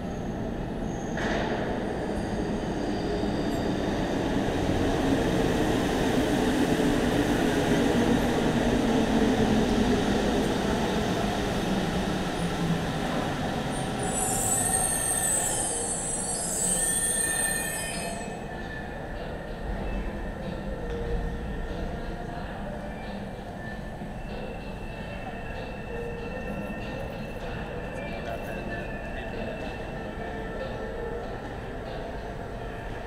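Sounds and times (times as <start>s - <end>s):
metallic squeal: 14.0s - 18.4s.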